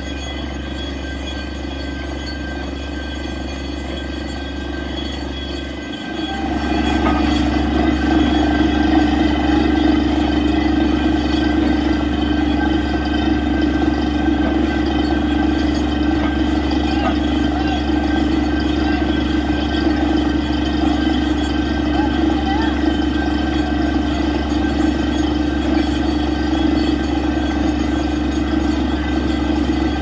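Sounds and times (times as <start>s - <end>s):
drilling rig engine hum: 0.0s - 30.0s
water gushing from borehole: 6.1s - 30.0s.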